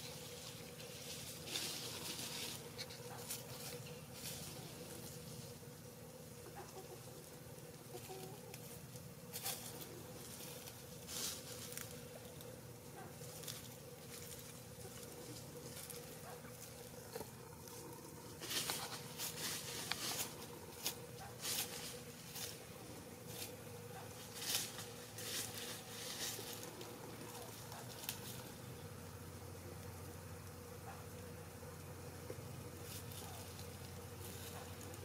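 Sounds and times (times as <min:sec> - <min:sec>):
faint steady hum: 0:00.0 - 0:35.0
hen scratching dry leaves: 0:00.0 - 0:35.0.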